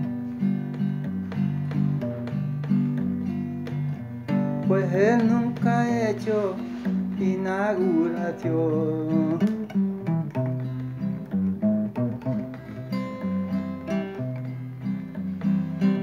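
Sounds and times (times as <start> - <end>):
acoustic guitar strummed and picked: 0.0 - 16.0
man singing: 4.6 - 9.7.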